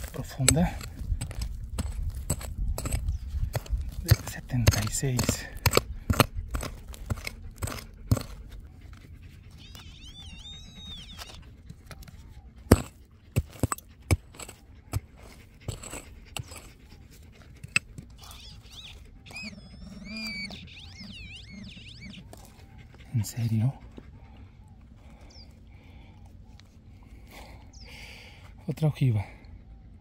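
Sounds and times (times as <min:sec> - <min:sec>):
digging tool striking soil: 0:00.0 - 0:08.4, 0:12.6 - 0:16.8, 0:17.5 - 0:18.3
wavering high-pitched animal call: 0:09.4 - 0:11.5, 0:18.2 - 0:23.0.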